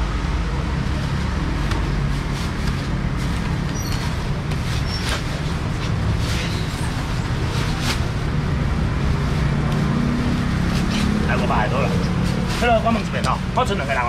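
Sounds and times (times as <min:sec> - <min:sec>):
plastic bags rustling: 0:01.6 - 0:08.4.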